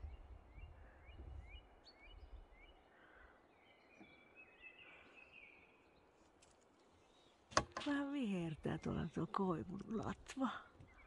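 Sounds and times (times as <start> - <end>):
bird chirping and twittering: 0.0 - 6.1, 8.5 - 11.0.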